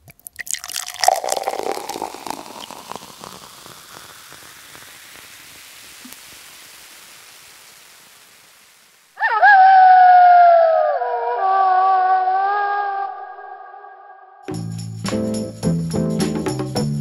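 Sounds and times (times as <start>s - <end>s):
faint steady hiss: 0.0s - 9.2s
dense crackling noise: 0.1s - 9.2s.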